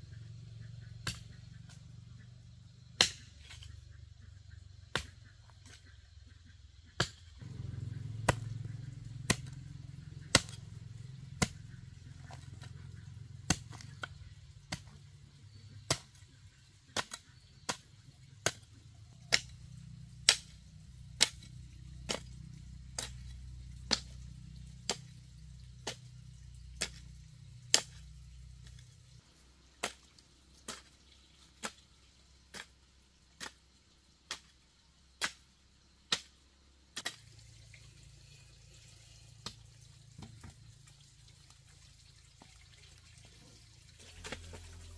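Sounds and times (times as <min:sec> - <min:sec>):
hoe chopping into dry soil: 0:01.0 - 0:01.8, 0:03.0 - 0:03.8, 0:04.9 - 0:05.9, 0:07.0 - 0:29.0, 0:29.7 - 0:32.8, 0:33.4 - 0:34.6, 0:35.2 - 0:35.5, 0:36.1 - 0:37.4.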